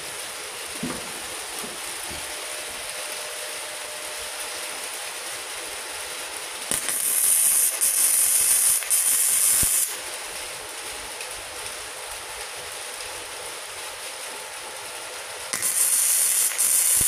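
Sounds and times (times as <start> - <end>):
welding arc crackling: 4.1 - 12.6, 15.5 - 17.0.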